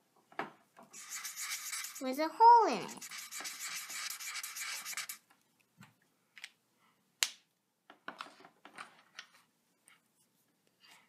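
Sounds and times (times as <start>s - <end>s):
marker scrubbing on paper: 0.9s - 5.2s.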